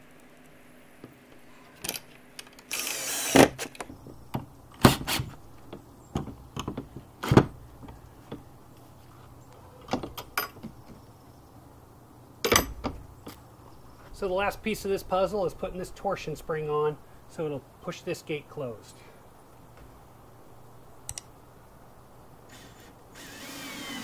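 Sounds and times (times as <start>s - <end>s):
cordless drill driving screw: 2.6s - 3.8s, 22.5s - 24.0s.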